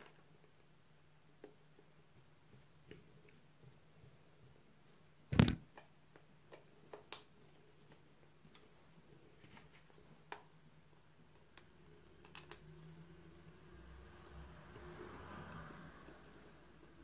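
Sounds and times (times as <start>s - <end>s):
plastic handling knock: 5.3s - 5.7s.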